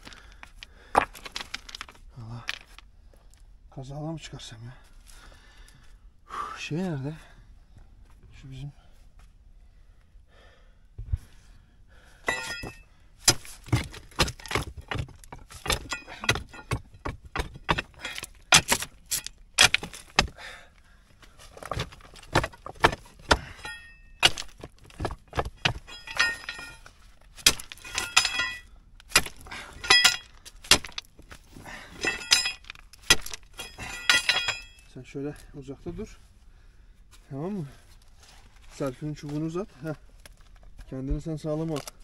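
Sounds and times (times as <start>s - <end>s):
stones clinking and clattering: 0.0s - 2.9s, 12.3s - 20.4s, 21.4s - 34.9s
metal tool striking rock: 12.2s - 20.4s, 21.6s - 31.1s, 31.9s - 34.9s.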